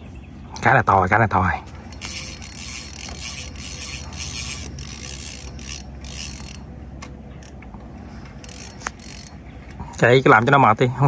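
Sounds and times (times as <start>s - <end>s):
fishing reel drag ticking: 1.8s - 6.7s, 8.2s - 9.4s.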